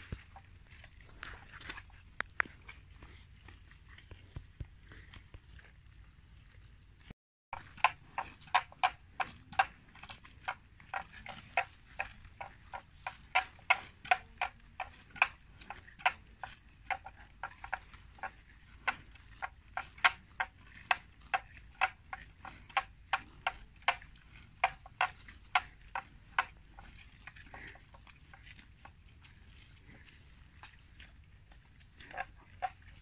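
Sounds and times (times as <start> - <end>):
buffalo tearing grass: 7.6 - 33.0.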